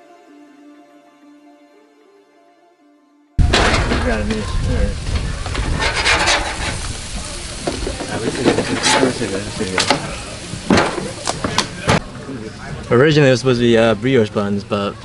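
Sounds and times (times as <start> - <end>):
patties sizzling on a grill: 3.4 - 15.0.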